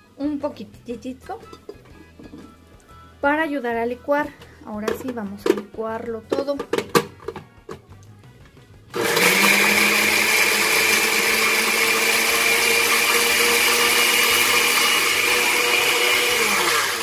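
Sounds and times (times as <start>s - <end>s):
blender running: 8.9s - 17.0s.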